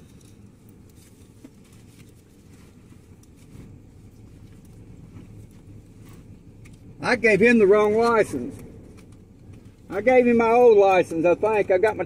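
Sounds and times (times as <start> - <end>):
soft clicks and rustles: 0.0 - 7.0, 7.7 - 12.0
low rumble in truck cab: 0.0 - 12.0.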